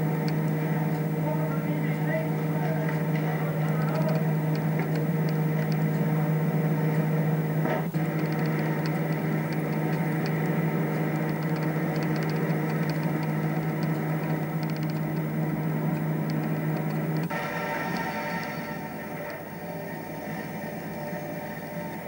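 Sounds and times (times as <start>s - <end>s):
machinery hum: 0.0s - 22.0s
click: 0.2s - 1.1s, 2.8s - 6.0s, 7.9s - 18.1s
faint light ticking: 8.0s - 17.3s.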